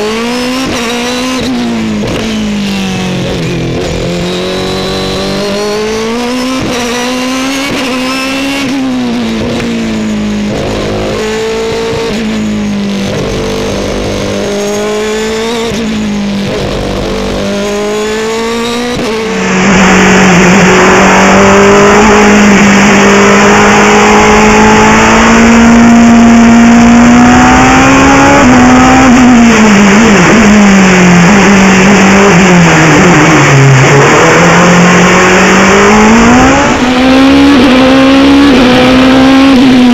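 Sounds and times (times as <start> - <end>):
race car engine revving: 0.0 - 39.9.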